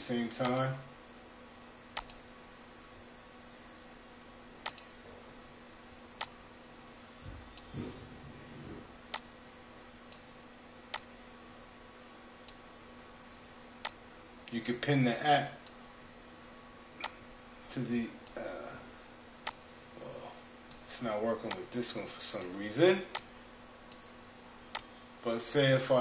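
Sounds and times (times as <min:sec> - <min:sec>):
computer mouse button clicks: 0:00.4 - 0:00.6, 0:02.0 - 0:02.2, 0:04.6 - 0:04.9.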